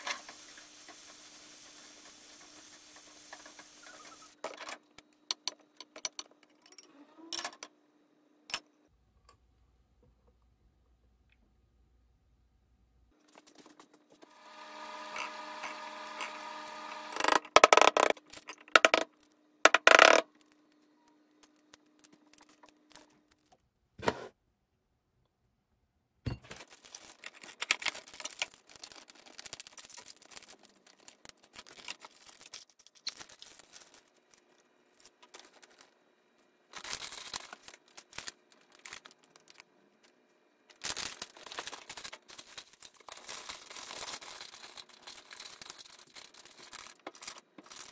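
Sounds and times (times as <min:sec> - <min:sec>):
plastic bag rustling: 0:26.5 - 0:36.0, 0:36.7 - 0:39.7, 0:40.7 - 0:47.9.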